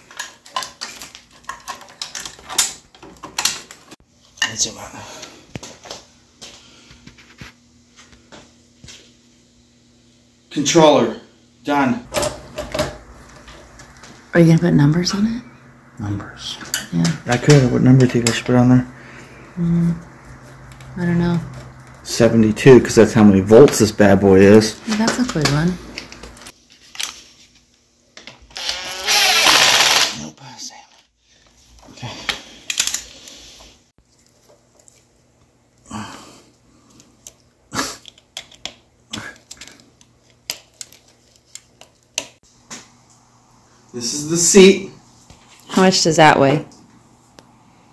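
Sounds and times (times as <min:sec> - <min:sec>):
person humming hmm: 0:19.6 - 0:20.1
short noisy bursts: 0:28.6 - 0:30.2.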